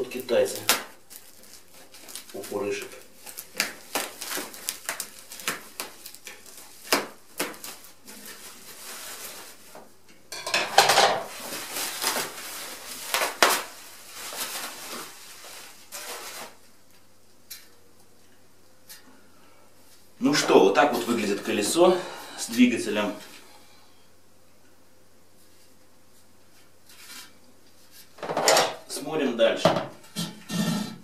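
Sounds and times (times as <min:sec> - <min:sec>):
plastic wrapping crinkling: 0:00.0 - 0:09.9, 0:11.2 - 0:17.0.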